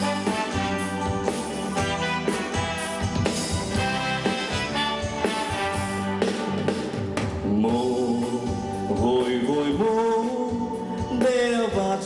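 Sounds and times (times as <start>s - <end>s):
drum kit hits: 0.0s - 8.6s
live band playing: 0.0s - 12.0s
man singing: 7.3s - 12.0s.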